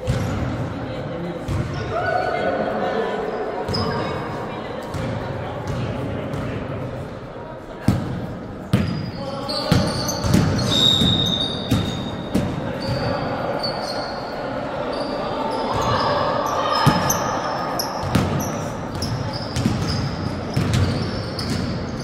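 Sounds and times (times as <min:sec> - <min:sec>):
players' voices: 0:00.0 - 0:22.0
basketball bouncing on court: 0:01.5 - 0:01.8, 0:09.7 - 0:13.1, 0:18.0 - 0:21.9
sneaker squeaks: 0:03.7 - 0:04.3, 0:08.7 - 0:22.0.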